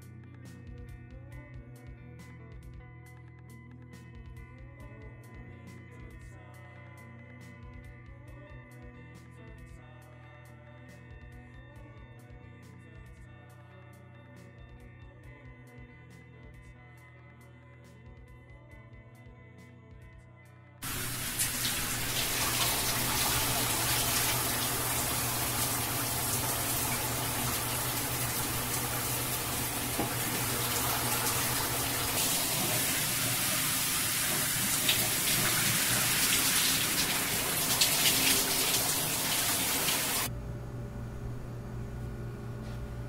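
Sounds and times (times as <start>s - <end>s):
shower water spraying: 20.8s - 40.3s.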